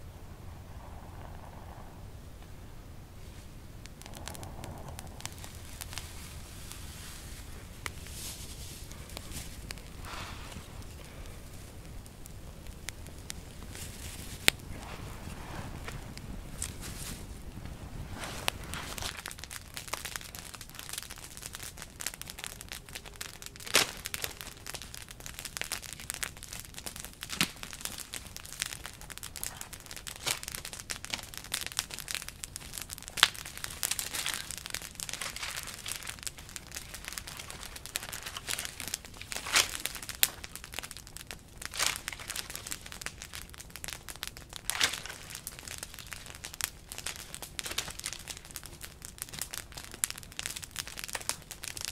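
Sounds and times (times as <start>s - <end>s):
campfire crackling: 0.0s - 51.9s
branches snapping: 3.8s - 51.9s.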